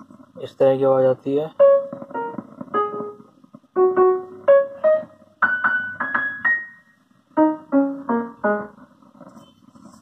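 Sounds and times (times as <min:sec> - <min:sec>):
amplifier crackling noise: 0:00.0 - 0:10.0
piano-like keyboard tune: 0:01.5 - 0:09.1.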